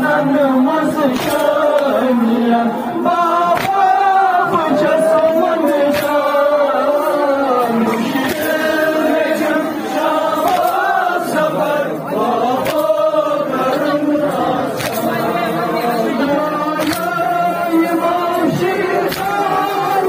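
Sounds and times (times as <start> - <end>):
men chanting through loudspeaker: 0.0 - 20.0
mourners' voices singing: 0.0 - 20.0
chest-beating slaps: 1.1 - 1.9, 3.5 - 3.9, 5.9 - 6.3, 7.9 - 8.7, 10.4 - 11.0, 12.6 - 13.0, 14.7 - 15.2, 16.8 - 17.3, 19.0 - 19.4.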